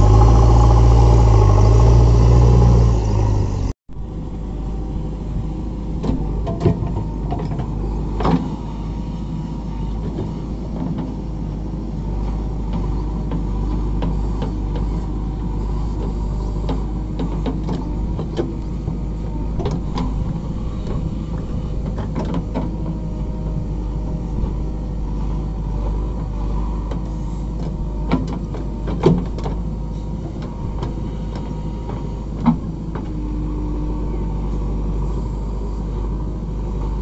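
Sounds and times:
steady whine: 0:00.0 - 0:10.7
diesel engine running: 0:00.0 - 0:37.0.

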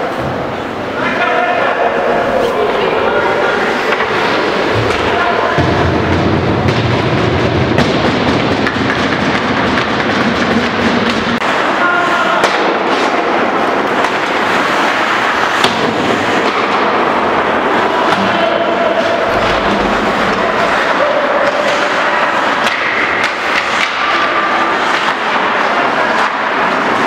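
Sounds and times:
skates scraping ice: 0:01.6 - 0:27.0
sticks and puck clacking: 0:03.6 - 0:27.0.

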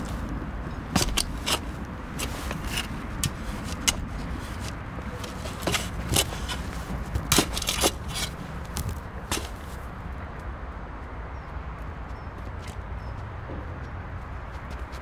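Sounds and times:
spade chopping into soil: 0:01.0 - 0:04.0, 0:05.2 - 0:09.6.

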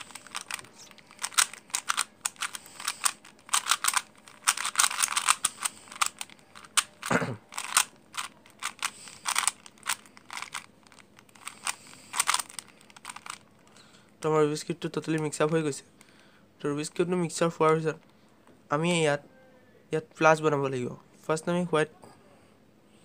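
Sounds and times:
puzzle cube clicking: 0:00.0 - 0:13.4.

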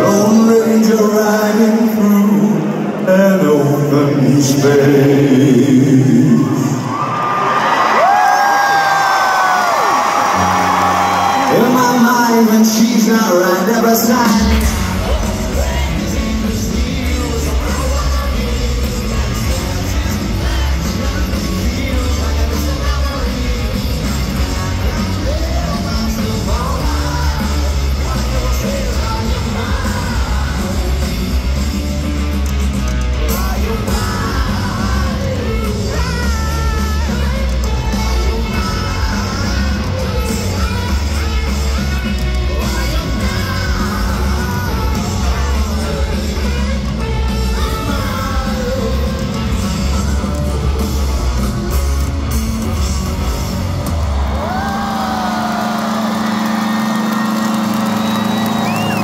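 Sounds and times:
crowd yelling and cheering: 0:00.0 - 0:59.0
live rock band playing: 0:09.0 - 0:59.0
distorted guitar and bass riff: 0:13.6 - 0:59.0.

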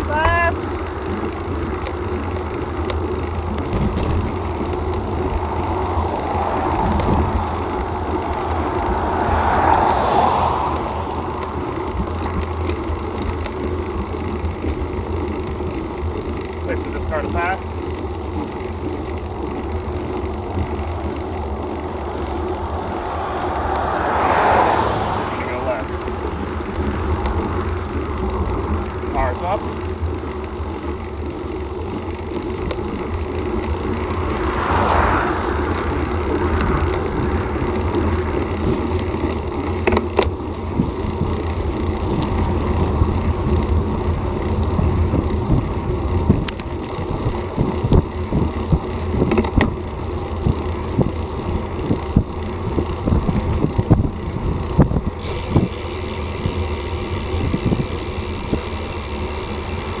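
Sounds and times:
bike clicks and knocks: 0:00.0 - 0:09.8, 0:10.7 - 0:23.7, 0:25.9 - 0:34.9, 0:35.5 - 1:00.0
bicycle road rumble: 0:00.0 - 1:00.0
wind noise: 0:03.4 - 0:12.7, 0:33.8 - 0:40.0, 0:40.6 - 1:00.0.

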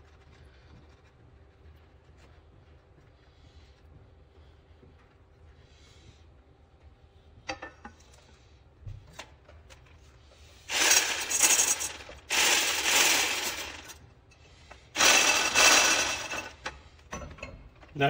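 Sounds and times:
electric hand blender whisking: 0:10.7 - 0:13.8, 0:15.0 - 0:16.4.

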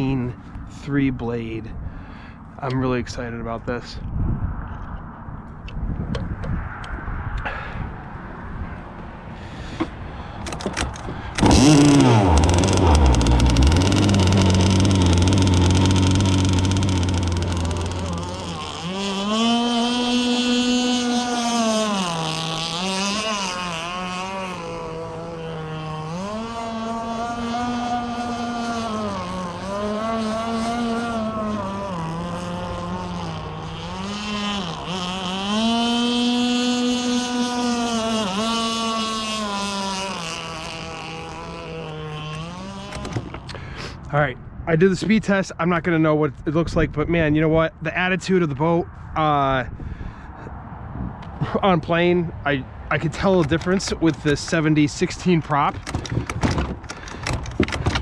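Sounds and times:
two-stroke boat engine: 0:09.5 - 0:43.8, 0:53.2 - 0:58.0.

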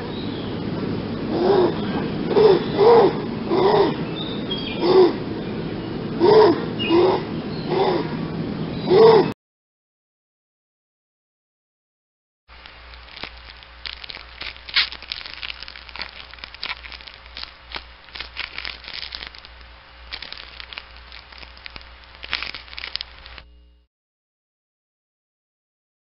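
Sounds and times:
low steady hum: 0:00.0 - 0:09.3, 0:12.5 - 0:23.9
dense crackling and crunching: 0:12.5 - 0:23.6.

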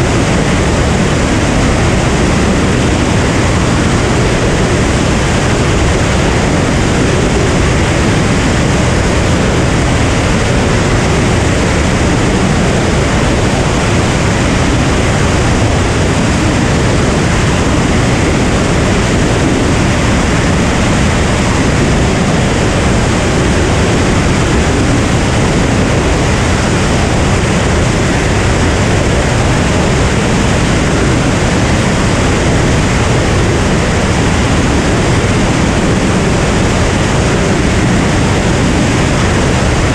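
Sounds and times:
propeller plane drone: 0:00.0 - 0:39.9.

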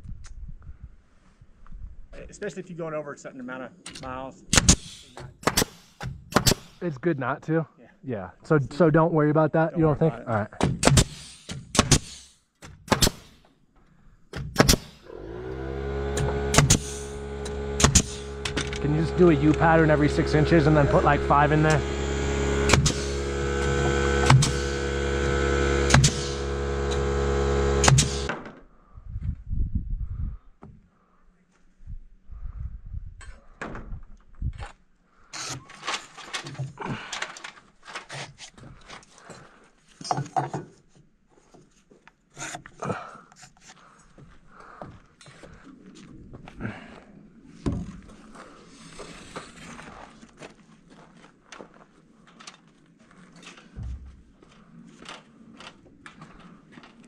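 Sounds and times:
wind rumble on microphone: 0:00.0 - 0:02.2, 0:28.9 - 0:30.5, 0:31.8 - 0:34.7
nail gun shots: 0:03.9 - 0:06.8, 0:10.6 - 0:13.4, 0:14.3 - 0:15.1, 0:16.2 - 0:18.8, 0:22.6 - 0:23.2, 0:24.2 - 0:24.8, 0:25.9 - 0:26.5, 0:27.8 - 0:28.5
motor humming: 0:14.7 - 0:28.3
boots and clothing scraping timber: 0:43.4 - 0:57.0.

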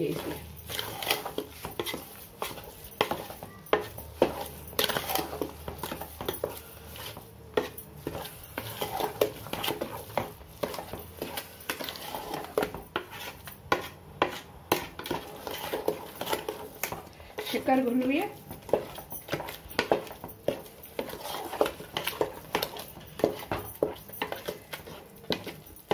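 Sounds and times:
spatula scraping metal pot: 0:00.0 - 0:25.9.

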